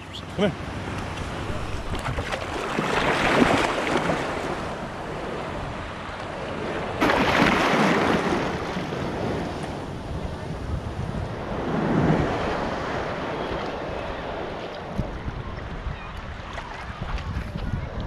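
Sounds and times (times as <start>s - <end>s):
rush of water: 0.1s - 10.7s
small surf waves breaking: 0.5s - 17.3s
sea water splashing: 0.6s - 10.1s.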